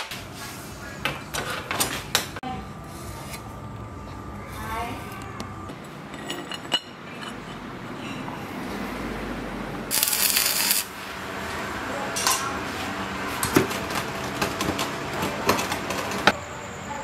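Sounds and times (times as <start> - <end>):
hissing arc welding: 9.9 - 11.2.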